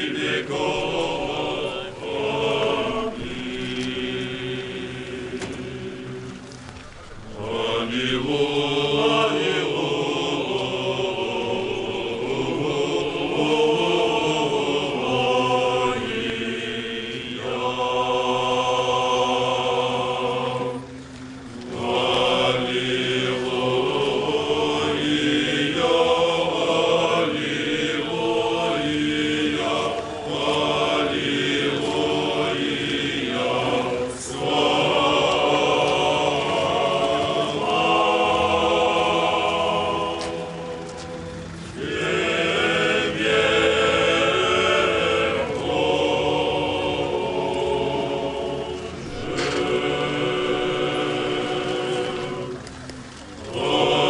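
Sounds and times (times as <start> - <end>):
group of voices chanting: 7.3 - 21.0, 21.6 - 52.6, 53.4 - 54.0.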